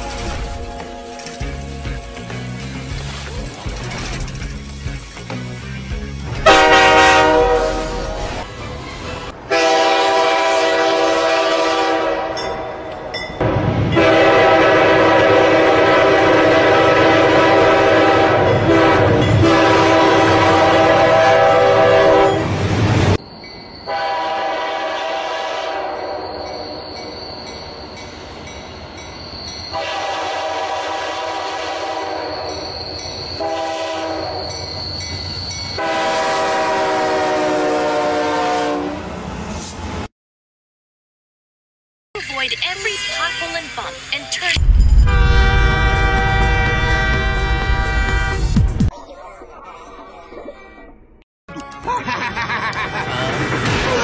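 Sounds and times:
train horn blasts: 6.4s - 8.4s, 9.4s - 12.8s, 13.9s - 22.6s, 23.9s - 26.5s, 29.7s - 32.8s, 33.4s - 34.6s, 35.8s - 39.2s, 45.1s - 48.6s.

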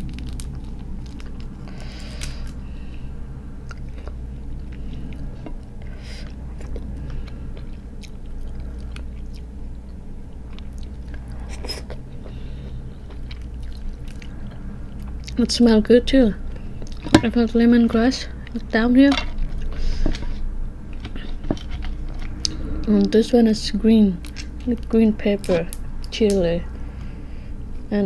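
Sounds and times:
low hum: 0.0s - 28.0s
chewing: 3.7s - 15.4s.

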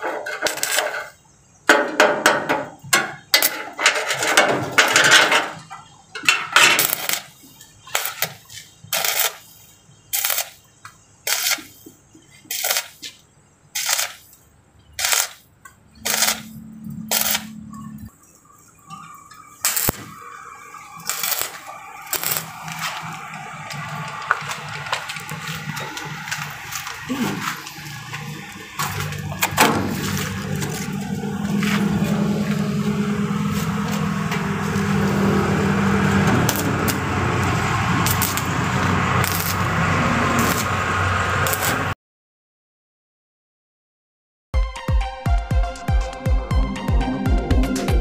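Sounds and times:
welding arc crackling: 0.3s - 1.2s, 6.6s - 11.8s, 12.5s - 14.4s, 15.0s - 42.0s.

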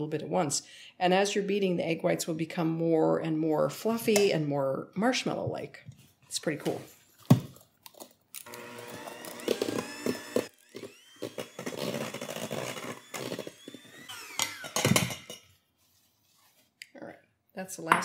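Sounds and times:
electric hand mixer whirring: 8.4s - 15.4s.

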